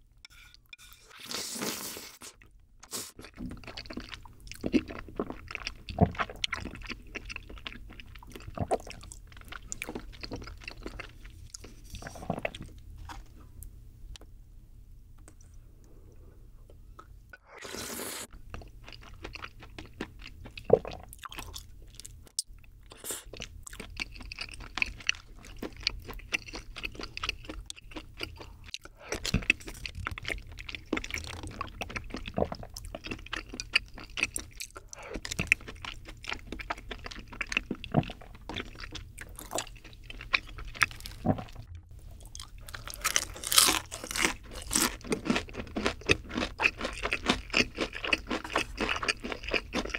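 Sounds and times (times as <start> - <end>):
person chewing food: 0.3 - 13.5, 16.7 - 49.9
slurping noodles: 1.0 - 2.3, 17.5 - 18.3.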